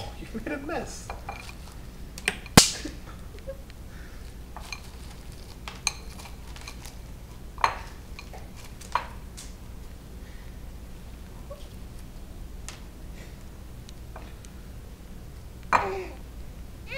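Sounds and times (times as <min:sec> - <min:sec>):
sharp clack: 0:02.4 - 0:02.9
wrapped candies clattering: 0:04.2 - 0:09.6.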